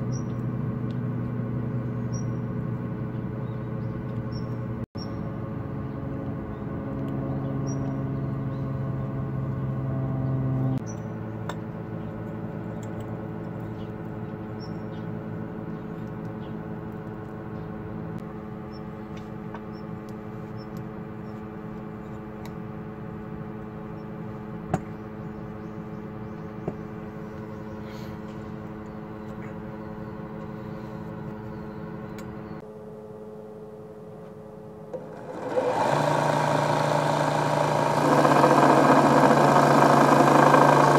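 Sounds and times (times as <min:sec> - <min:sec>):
soft sustained drone music: 0:27.1 - 0:35.0.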